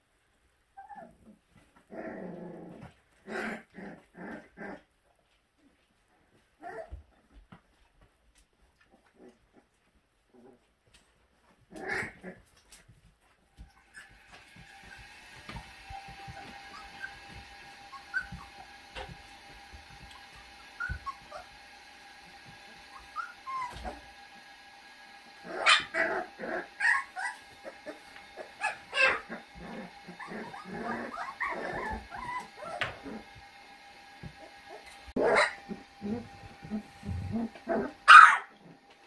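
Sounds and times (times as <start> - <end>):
puppies whimpering and yipping: 13.6 - 21.8, 22.4 - 24.2, 25.4 - 33.5
puppy crying loudly: 16.0 - 19.2, 20.0 - 21.6, 22.8 - 24.1, 25.4 - 33.3, 34.6 - 38.8.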